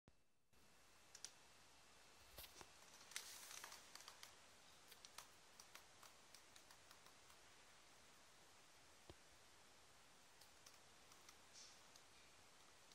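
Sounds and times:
faint small clicks: 0:01.1 - 0:01.4, 0:10.4 - 0:12.1.

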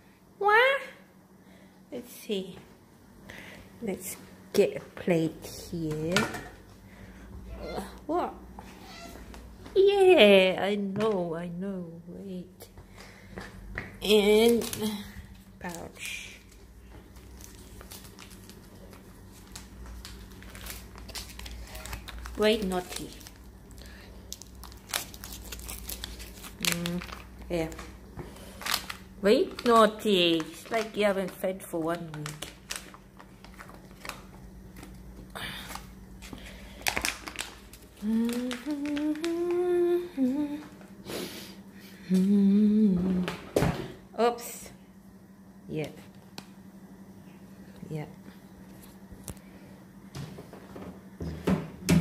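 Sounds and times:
steady low hum: 0:00.0 - 0:52.0
foil pouch crinkling: 0:14.4 - 0:39.7
person humming: 0:38.0 - 0:40.8, 0:42.0 - 0:43.4.

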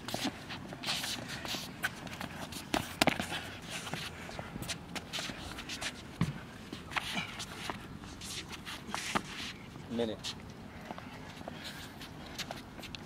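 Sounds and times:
sneakers shuffling on hard court: 0:00.0 - 0:10.4.

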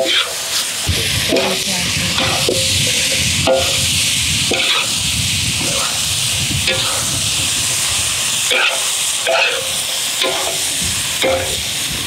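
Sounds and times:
chilies sizzling in a wok: 0:00.0 - 0:12.0.

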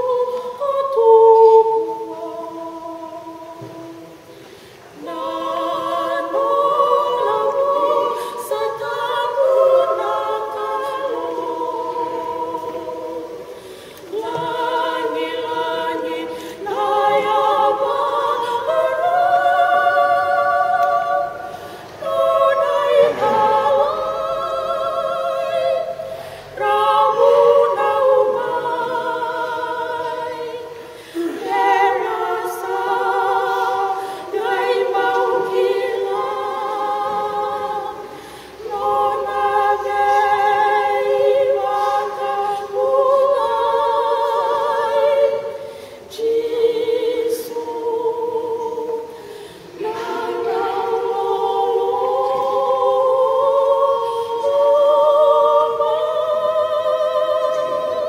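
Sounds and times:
women's choir singing: 0:00.0 - 0:58.0.

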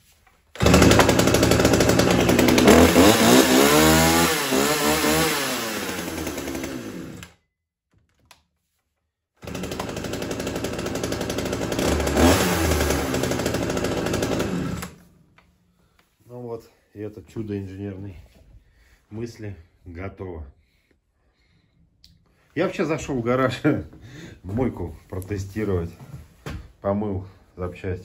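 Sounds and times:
chainsaw revving: 0:00.6 - 0:07.4, 0:09.4 - 0:15.1.

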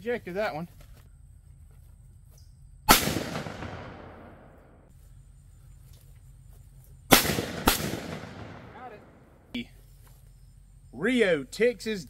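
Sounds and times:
shotgun shot echoing: 0:02.9 - 0:04.9, 0:07.1 - 0:09.4.

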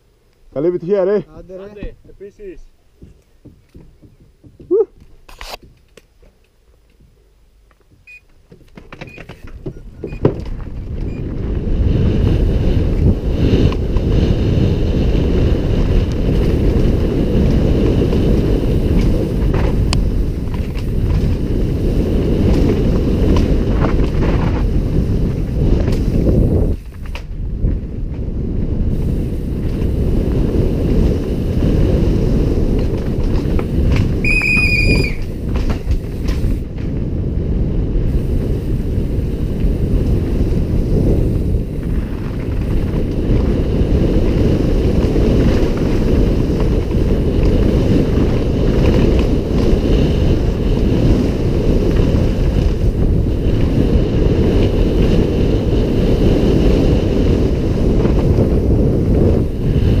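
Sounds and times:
tyres rumbling on dirt trail: 0:00.0 - 1:00.0
wind buffeting microphone: 0:07.8 - 1:00.0
high-pitched squeal: 0:34.2 - 0:35.3.

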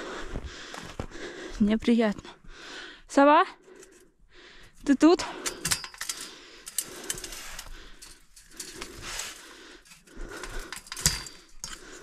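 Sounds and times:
metallic clicks on wire mesh: 0:05.4 - 0:08.9.

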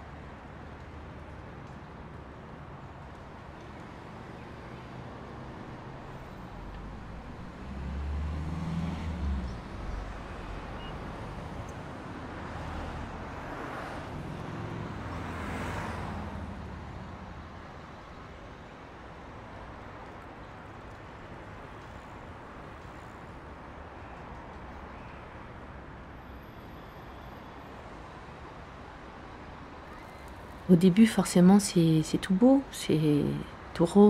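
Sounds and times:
cars passing: 0:05.0 - 0:18.4.

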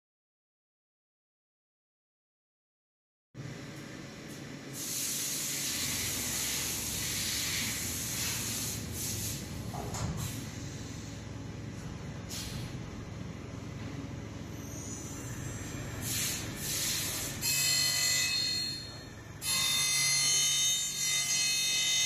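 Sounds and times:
low machine hum: 0:03.4 - 0:22.0
loud even hiss: 0:04.7 - 0:10.4, 0:16.0 - 0:17.4.

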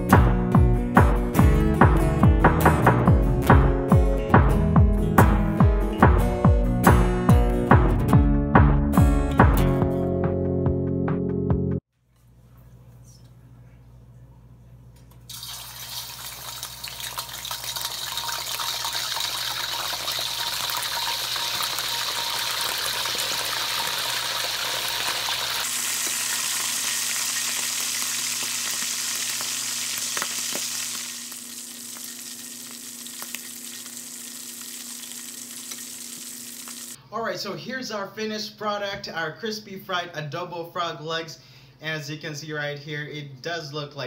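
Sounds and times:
frog legs sizzling in hot oil: 0:15.3 - 0:37.0.

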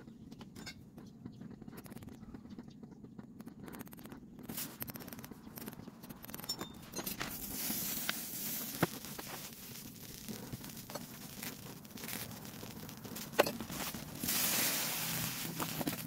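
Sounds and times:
spray bottle hiss: 0:07.2 - 0:16.0.

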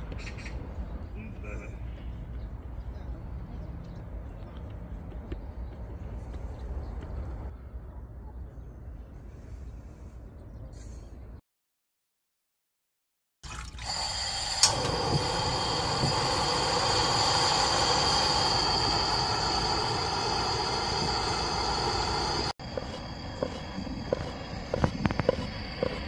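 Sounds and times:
gas stove burner hissing: 0:13.8 - 0:26.0.

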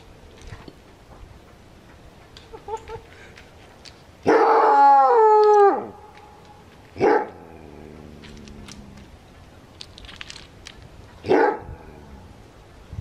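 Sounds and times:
coyote howling yelp: 0:04.3 - 0:06.0.

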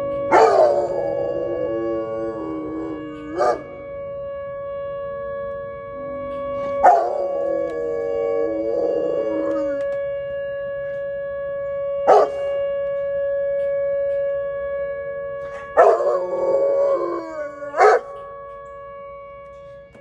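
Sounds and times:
warning siren steady tone: 0:00.0 - 0:20.0
dog howling: 0:00.3 - 0:03.8, 0:06.1 - 0:10.0, 0:12.1 - 0:12.4, 0:15.7 - 0:18.2.

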